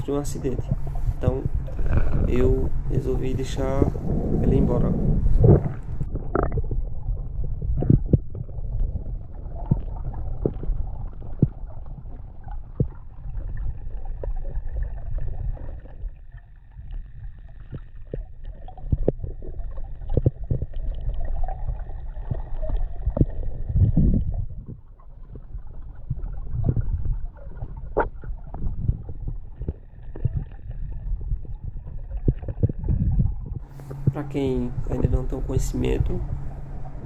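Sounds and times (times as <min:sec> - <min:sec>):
low rumble of water underwater: 0:00.0 - 0:37.0
faint high whine: 0:33.7 - 0:37.0.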